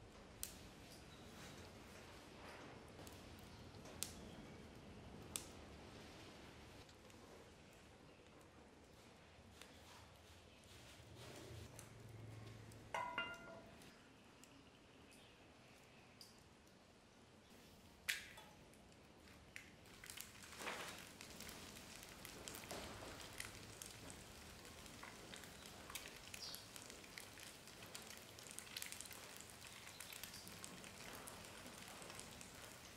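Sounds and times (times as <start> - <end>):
egg sizzling with spitting pops: 19.6 - 32.9.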